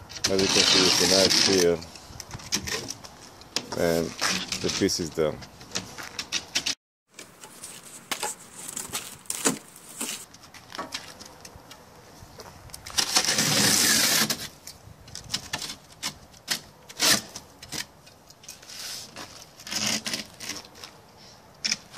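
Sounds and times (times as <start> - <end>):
utility knife scraping board: 0.2 - 3.0, 5.8 - 10.3, 12.9 - 14.6, 15.4 - 17.9, 18.5 - 20.8.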